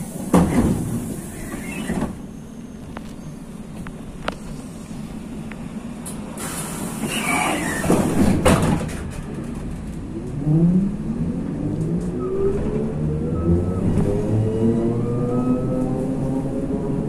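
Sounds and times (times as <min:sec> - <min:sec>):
compressed air hiss: 0:06.4 - 0:08.1.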